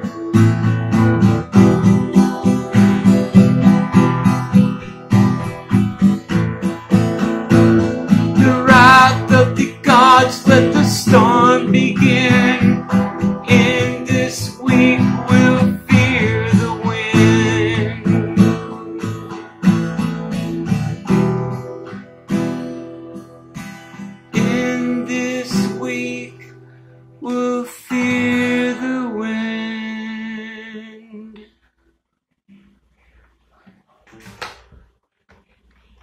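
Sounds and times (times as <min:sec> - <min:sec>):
acoustic guitar strumming chords: 0:00.0 - 0:31.6
man singing: 0:08.2 - 0:19.1, 0:24.3 - 0:26.6, 0:27.2 - 0:31.5.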